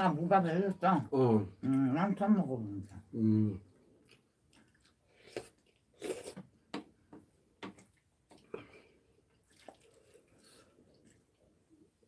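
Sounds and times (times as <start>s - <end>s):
chewing: 3.7s - 6.5s, 7.6s - 11.9s
wet slurp: 9.4s - 11.5s.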